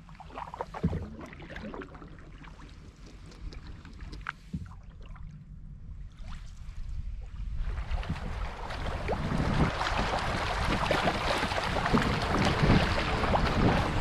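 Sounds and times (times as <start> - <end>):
paddle strokes splashing: 0.0 - 5.2, 7.5 - 14.0
wind buffeting microphone: 5.7 - 14.0
river water rushing and splashing: 8.2 - 14.0.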